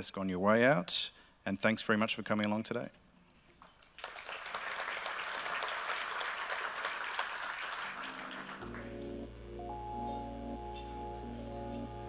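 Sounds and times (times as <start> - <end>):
audience applauding: 3.8 - 9.4
background music with bass: 8.6 - 12.0.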